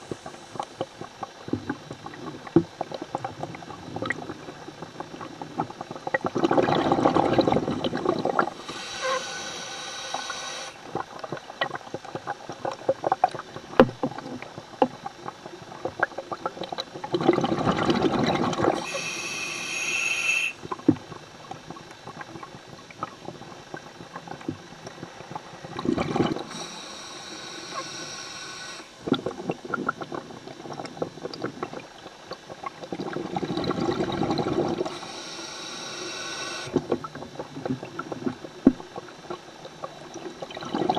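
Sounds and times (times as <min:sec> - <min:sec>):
exhaled bubbles rushing: 0:00.0 - 0:09.3, 0:15.3 - 0:19.1, 0:20.4 - 0:40.9
regulator hissing and whistling: 0:08.6 - 0:10.8, 0:18.8 - 0:20.6, 0:26.5 - 0:29.0, 0:34.9 - 0:36.7.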